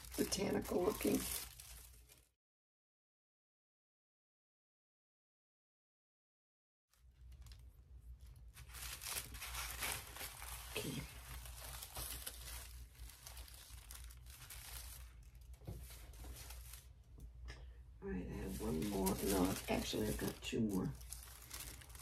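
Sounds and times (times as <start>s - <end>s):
paper rustling and crinkling: 0.0s - 2.3s, 7.0s - 17.4s, 18.4s - 22.0s
low steady hum: 7.0s - 22.0s.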